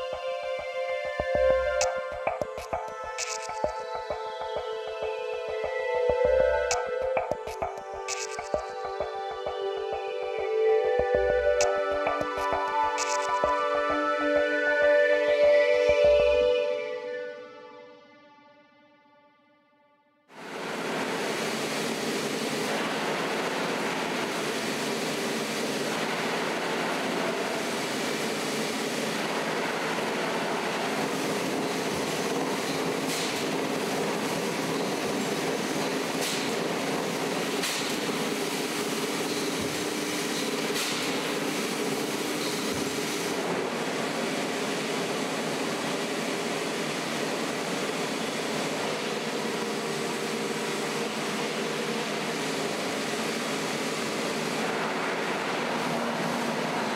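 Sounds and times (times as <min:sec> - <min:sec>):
industrial machinery running: 0:00.0 - 0:16.4, 0:20.4 - 0:56.9
sharp clicks: 0:01.8 - 0:04.2, 0:06.6 - 0:08.7, 0:11.6 - 0:13.6.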